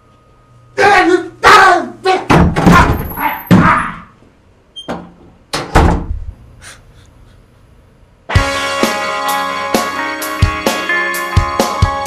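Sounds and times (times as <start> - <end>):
door thudding: 2.3 - 4.0, 4.9 - 6.2
music with drums and guitar: 8.3 - 12.0.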